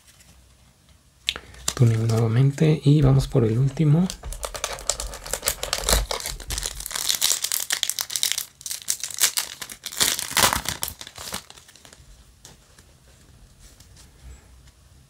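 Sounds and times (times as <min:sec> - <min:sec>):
foil wrapper crinkling and tearing: 0:01.3 - 0:12.1.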